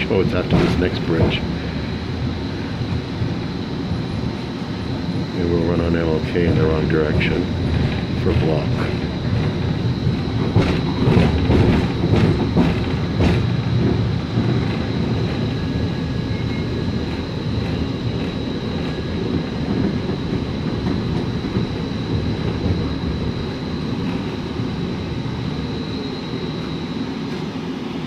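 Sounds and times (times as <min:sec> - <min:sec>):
rumble of wheels on track: 0:00.0 - 0:28.0.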